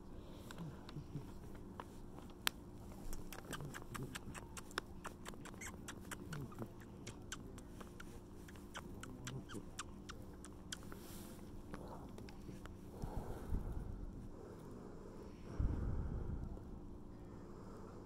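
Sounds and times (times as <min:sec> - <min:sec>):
low steady hum: 0:00.0 - 0:18.0
hand scratching cat fur: 0:00.3 - 0:11.7.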